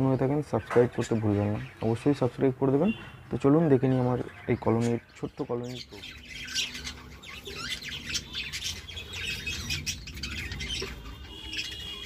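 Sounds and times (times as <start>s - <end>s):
budgerigars chirping: 0.0s - 12.0s
long held bird call: 6.2s - 12.0s.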